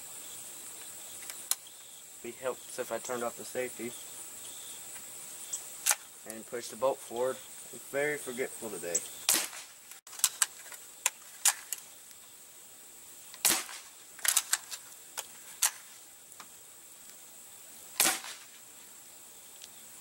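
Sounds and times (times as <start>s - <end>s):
sharp clicks: 5.8s - 6.4s
air rifle shot crack: 9.3s - 9.8s, 13.4s - 14.4s, 18.0s - 18.5s.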